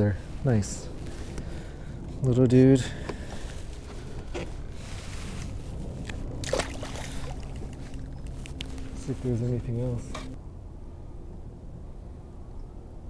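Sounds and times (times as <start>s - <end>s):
low rumble of wind and water: 0.0s - 13.0s
fish splashing into water: 6.4s - 8.0s.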